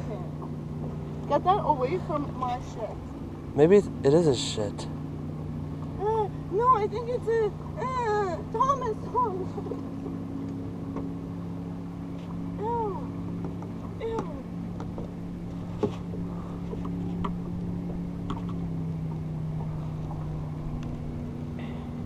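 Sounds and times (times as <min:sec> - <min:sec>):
boat machine hum: 0:00.0 - 0:22.0.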